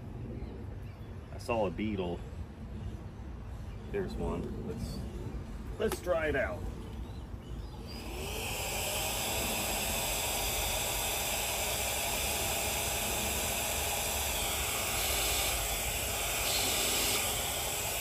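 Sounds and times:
handheld vacuum running: 7.8s - 18.0s.

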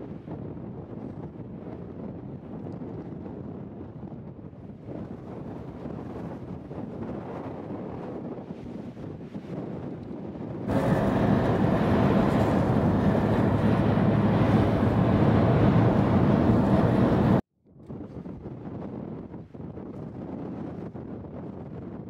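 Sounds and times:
wind noise on microphone: 0.0s - 22.0s
car driving on paved road: 10.7s - 17.4s.

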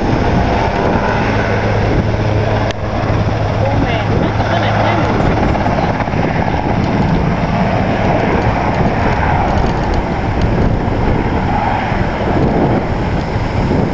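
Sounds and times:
helicopter flying low: 0.0s - 13.9s.

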